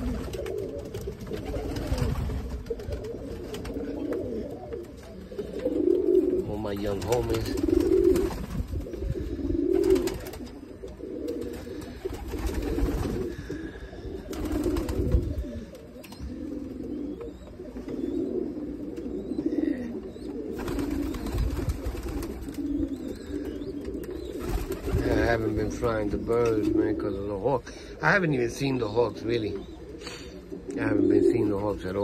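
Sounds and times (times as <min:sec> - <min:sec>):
wings flapping: 0:00.0 - 0:05.8, 0:06.6 - 0:09.1, 0:09.7 - 0:13.6, 0:14.2 - 0:16.2, 0:20.5 - 0:23.1, 0:23.8 - 0:25.5
pigeons cooing: 0:00.0 - 0:32.0.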